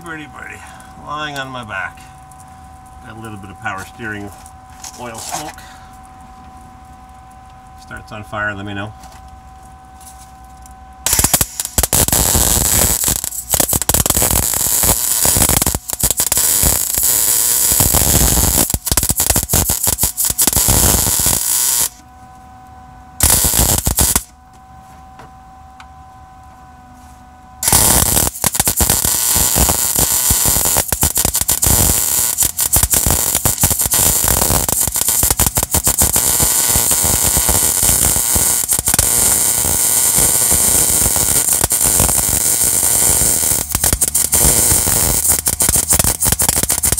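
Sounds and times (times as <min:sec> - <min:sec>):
welding arc crackling: 0:10.4 - 0:22.0, 0:23.2 - 0:24.3, 0:27.6 - 0:46.9.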